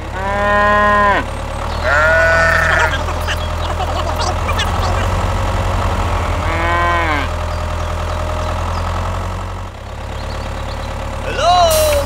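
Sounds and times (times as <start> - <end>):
cow mooing: 0.0 - 7.7
low engine hum: 0.0 - 12.0.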